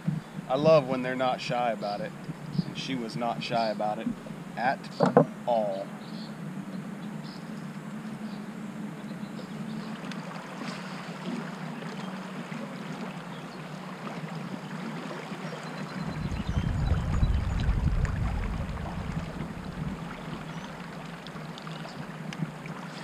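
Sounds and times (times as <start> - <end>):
water lapping around hull: 0.0 - 23.0
steady low hum: 15.9 - 22.3
wind rumble on microphone: 16.0 - 20.9.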